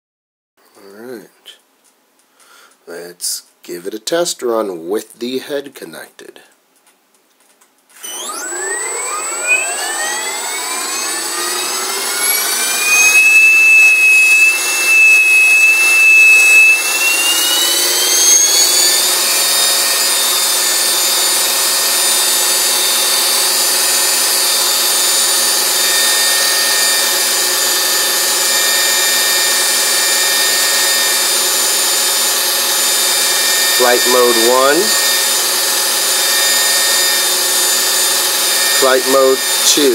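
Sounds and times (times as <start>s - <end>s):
helicopter motor whining: 8.0s - 39.9s.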